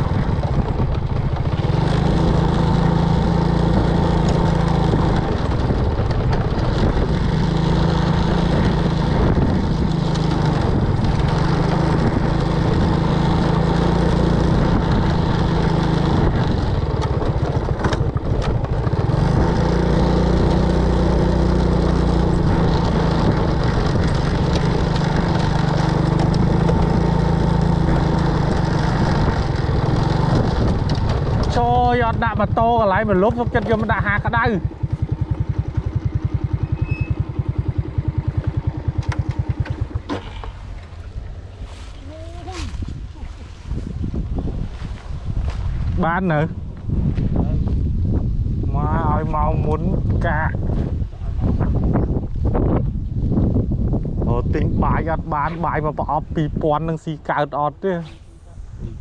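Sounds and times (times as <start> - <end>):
small engine running: 0.0 - 43.9.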